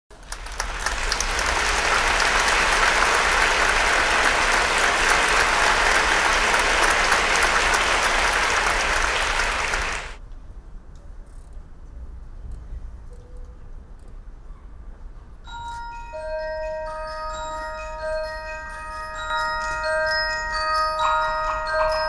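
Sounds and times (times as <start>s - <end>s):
audience applauding: 0.1s - 10.2s, 21.0s - 22.0s.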